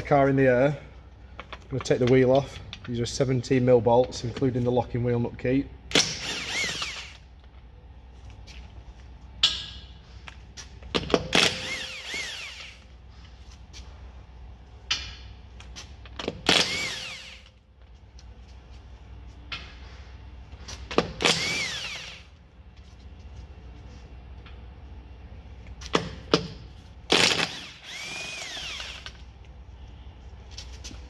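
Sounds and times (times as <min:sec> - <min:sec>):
impact wrench spinning bolts: 0:20.8 - 0:22.3, 0:27.1 - 0:29.3.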